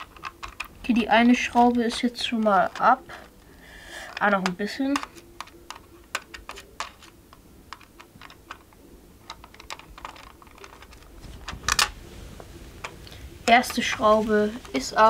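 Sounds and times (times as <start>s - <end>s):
screwdriver clicking on plastic: 0.0s - 0.8s, 4.0s - 11.1s
screwdriver clattering: 0.0s - 3.4s, 4.0s - 12.0s.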